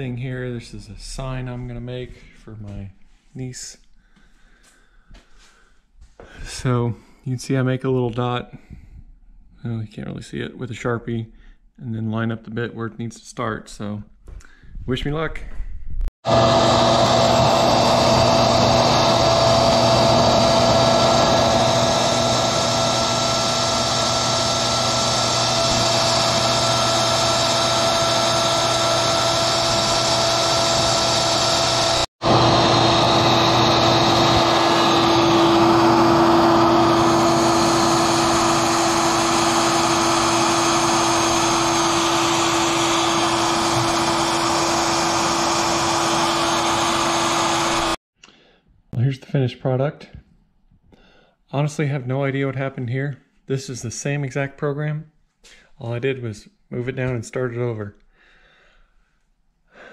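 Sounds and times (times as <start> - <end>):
router motor whining: 16.3 - 48.0.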